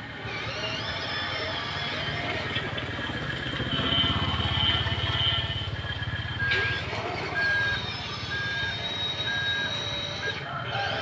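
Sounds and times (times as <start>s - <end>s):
simulated diesel engine chugging: 0.0s - 11.0s
reversing alarm beeps: 2.8s - 11.0s.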